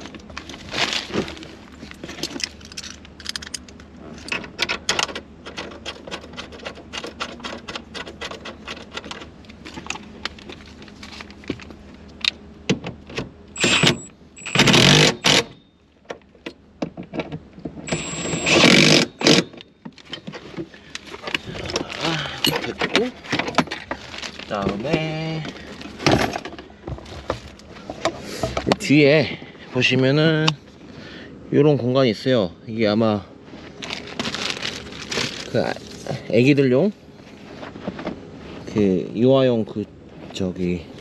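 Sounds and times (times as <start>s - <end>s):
metal clicks and clinks: 2.2s - 5.0s.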